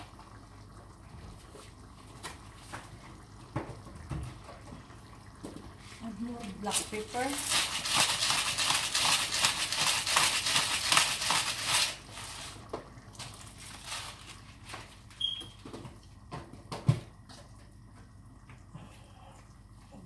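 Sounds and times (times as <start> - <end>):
pepper mill grinding: 6.7 - 12.6.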